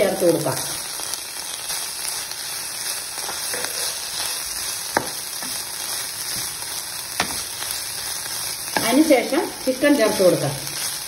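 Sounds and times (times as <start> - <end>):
vegetables sizzling in hot oil: 0.0 - 11.0
wooden spoon scraping pan: 3.2 - 4.1.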